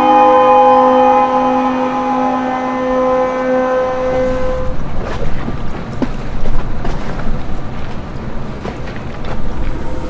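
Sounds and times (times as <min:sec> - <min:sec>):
ship's horn blast: 0:00.0 - 0:05.0
wind rumbling on microphone: 0:04.0 - 0:10.0.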